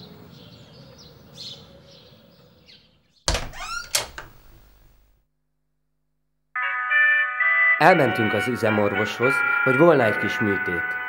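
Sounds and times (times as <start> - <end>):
door latch and handle clacking: 3.3 - 5.0.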